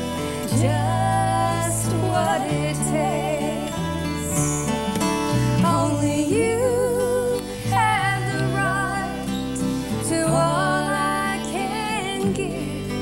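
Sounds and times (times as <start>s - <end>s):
woman singing: 0.0s - 4.7s, 5.4s - 13.0s
acoustic guitar: 0.0s - 13.0s.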